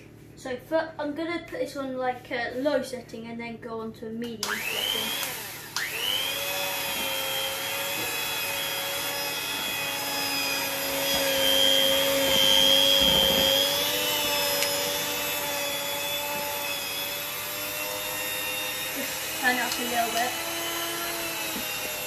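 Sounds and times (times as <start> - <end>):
electric mixer whine: 4.4 - 22.0.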